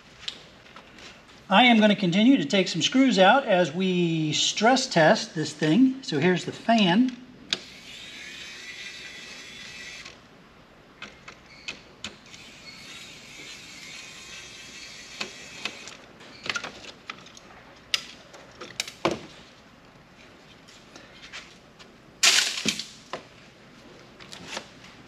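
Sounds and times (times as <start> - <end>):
electric screwdriver motor whining: 7.6 - 10.2, 12.3 - 16.0.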